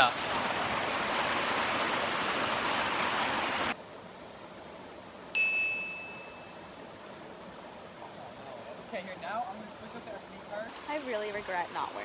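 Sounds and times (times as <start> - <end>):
waterfall rushing: 0.0 - 3.8
bright chime: 5.4 - 6.6.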